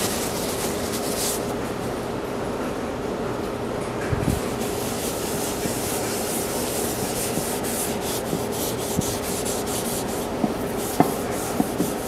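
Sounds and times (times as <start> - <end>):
steady hum: 0.0 - 12.0
rag wiping wood: 4.4 - 12.0.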